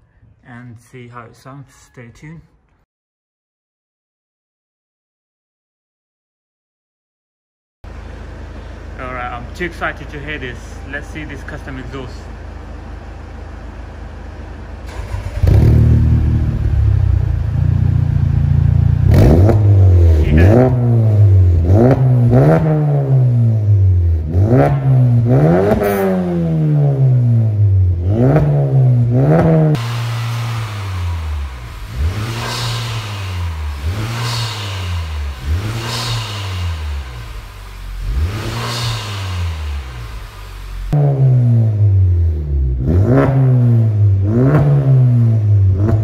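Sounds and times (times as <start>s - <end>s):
car engine starting: 7.9s - 46.0s
car engine revving in blips: 14.8s - 46.0s.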